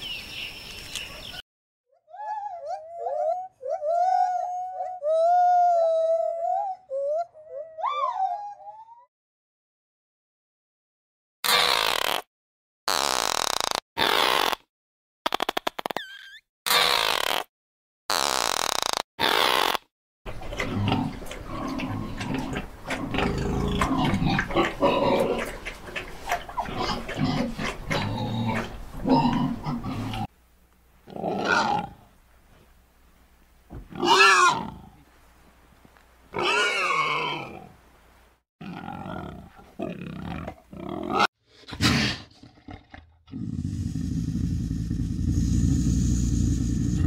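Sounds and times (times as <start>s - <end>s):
pig grunting and snuffling: 20.3s - 30.3s, 38.6s - 47.0s
boar calling: 31.1s - 32.0s, 33.8s - 35.0s, 36.3s - 37.7s.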